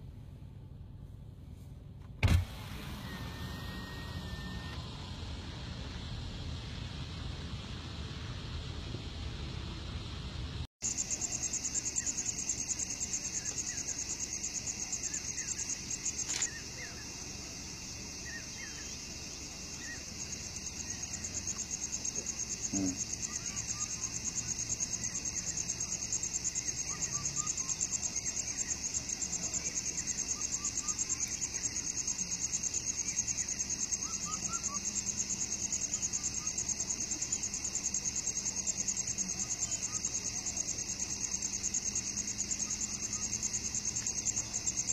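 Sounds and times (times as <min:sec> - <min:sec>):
insects chirring: 0:10.8 - 0:44.9
faint bird chirps: 0:10.9 - 0:17.3, 0:18.2 - 0:37.5.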